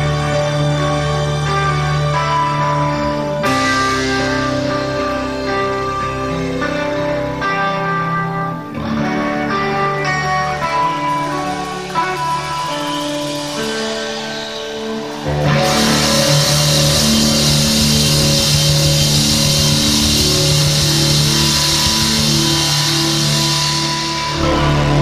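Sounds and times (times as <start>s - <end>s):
distorted electric guitar: 0.0s - 25.0s
live rock band playing: 0.0s - 25.0s
drums and cymbals crashing: 10.7s - 25.0s.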